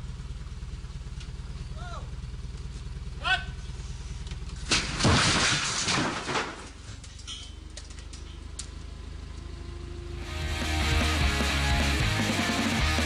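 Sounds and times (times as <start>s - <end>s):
loud crash with clatter: 4.6s - 6.9s
forklift engine running: 8.4s - 13.0s
music: 10.2s - 13.0s.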